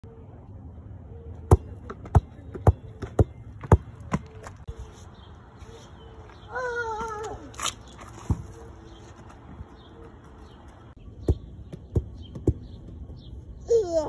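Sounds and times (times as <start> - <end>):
basketball bouncing on gravel: 1.5 - 4.6, 7.8 - 13.3.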